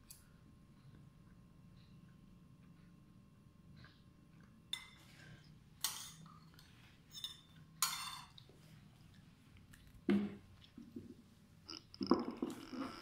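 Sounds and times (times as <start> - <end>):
cutlery clinking on plate: 7.1 - 8.4.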